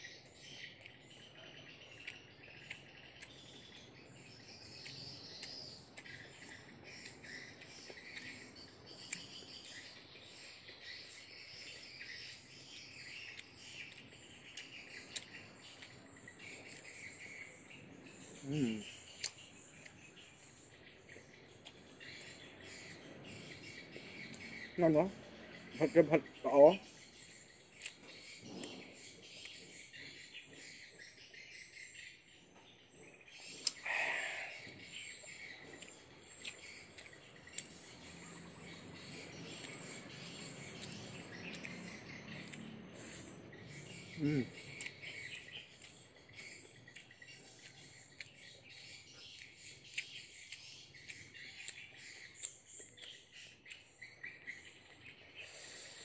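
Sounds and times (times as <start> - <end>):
bird chirps: 0.0 - 56.0
insects chorus: 33.6 - 37.1, 55.4 - 56.0
crickets chirping: 33.7 - 47.0
breathy exhale: 33.8 - 34.7, 55.4 - 56.0.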